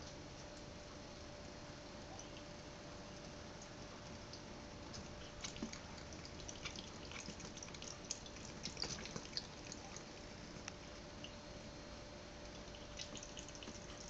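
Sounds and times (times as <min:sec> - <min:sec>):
water drips and splashes: 0:03.2 - 0:11.4, 0:12.5 - 0:14.0.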